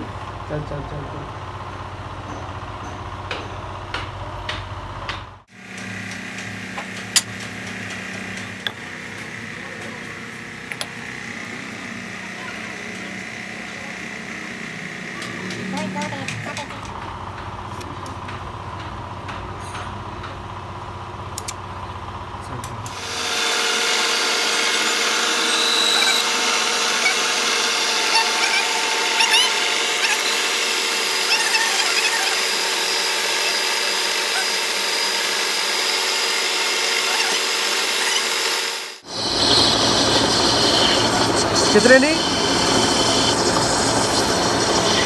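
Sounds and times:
lathe machine whine: 5.5s - 16.0s, 22.9s - 45.0s
tool squeaking on steel: 24.6s - 38.5s.

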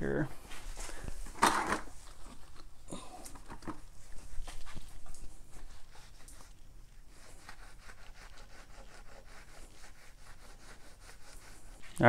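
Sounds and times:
cloth rubbing on handlebar: 3.5s - 12.0s.

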